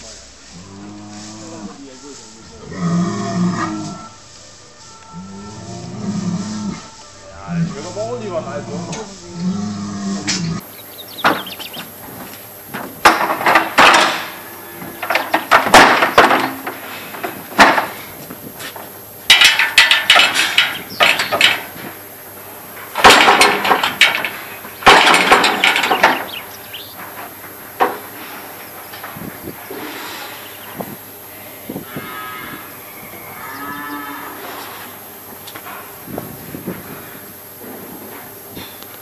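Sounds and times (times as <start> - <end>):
metal gates rattling and clanging: 10.7 - 18.2, 18.8 - 29.3.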